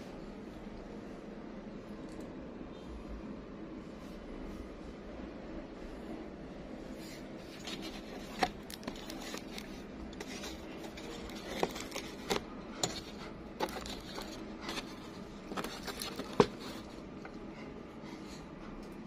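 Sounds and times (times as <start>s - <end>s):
handling clicks and crackles: 7.5s - 17.4s.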